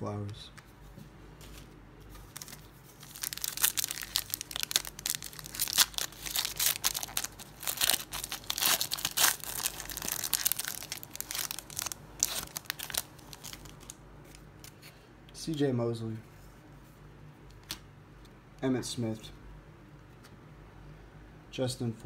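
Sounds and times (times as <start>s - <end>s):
foil wrapper crinkling and tearing: 2.3s - 14.8s.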